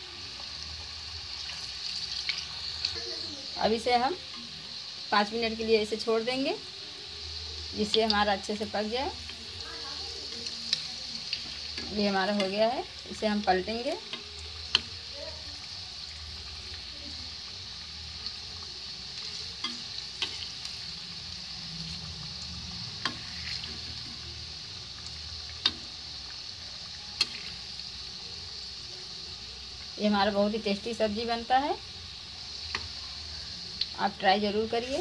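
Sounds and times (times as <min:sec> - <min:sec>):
food deep-frying in hot oil: 0:00.0 - 0:35.0.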